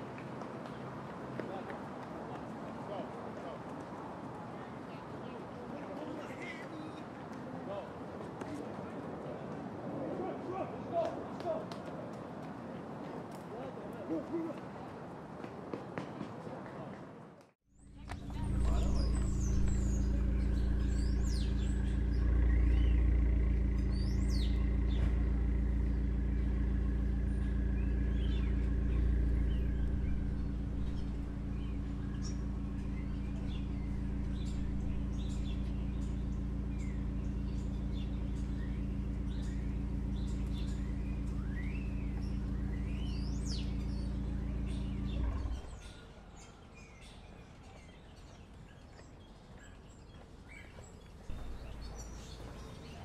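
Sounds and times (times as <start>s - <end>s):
small birds chirping: 0.0s - 9.4s, 17.8s - 53.0s
low mechanical hum: 17.8s - 49.2s.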